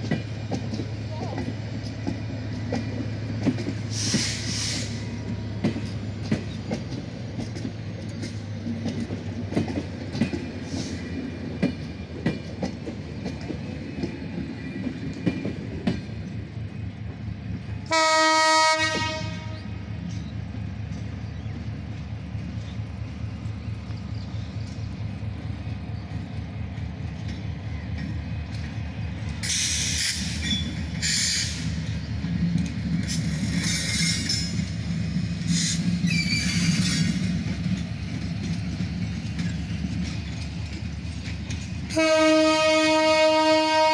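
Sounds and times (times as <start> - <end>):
train wheels clattering on rails: 0.0 - 43.9
train horn blowing: 17.8 - 19.9, 41.9 - 43.9.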